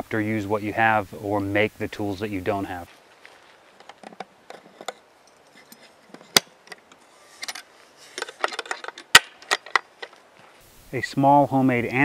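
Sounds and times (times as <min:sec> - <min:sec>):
metal-on-wood clinks: 0:03.8 - 0:10.2.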